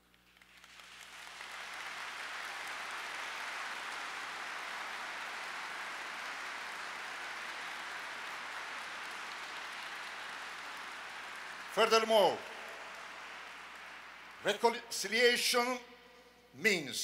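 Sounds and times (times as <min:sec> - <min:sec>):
large audience applauding: 0:00.0 - 0:15.4.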